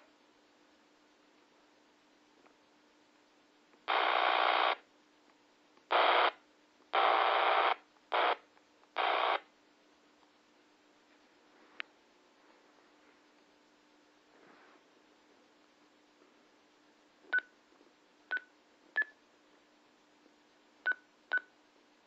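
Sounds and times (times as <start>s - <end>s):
radio static hiss bursts: 3.9s - 4.8s, 5.9s - 9.5s.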